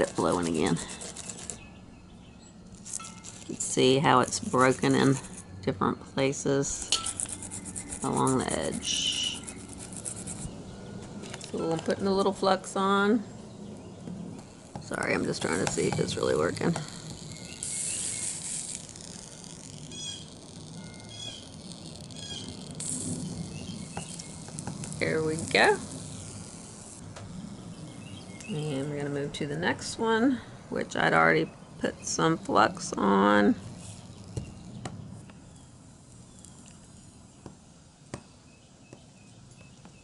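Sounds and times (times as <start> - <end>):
soldering iron sizzling: 2.8 - 5.4, 14.3 - 28.5
small bird chirping: 13.3 - 28.9
sharp crackling clicks: 14.4 - 27.3.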